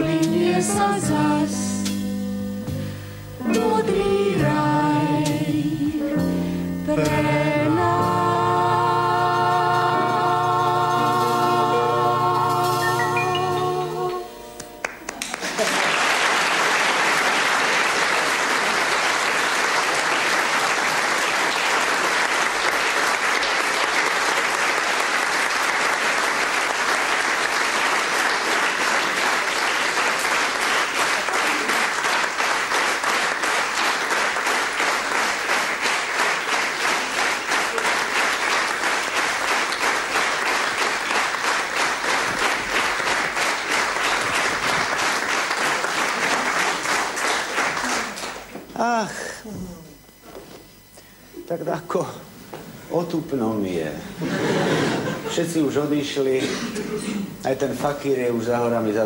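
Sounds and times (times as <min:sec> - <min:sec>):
audience applauding: 0:14.8 - 0:49.0.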